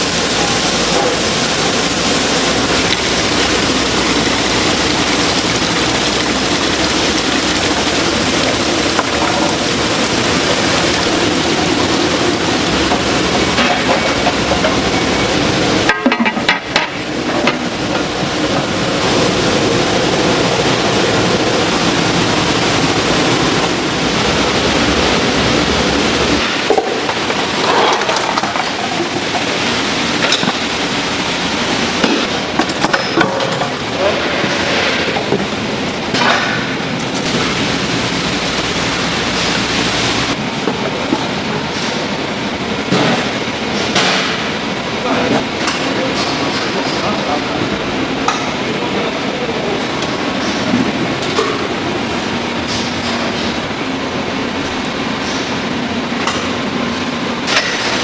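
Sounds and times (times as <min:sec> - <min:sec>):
production-line machinery running: 0:00.0 - 0:58.0.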